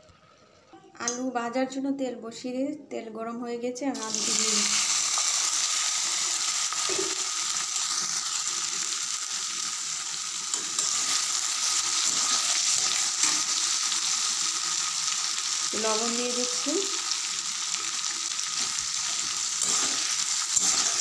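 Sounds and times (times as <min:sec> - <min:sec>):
potatoes sizzling in oil: 0:04.0 - 0:21.0
spatula stirring in wok: 0:18.5 - 0:21.0.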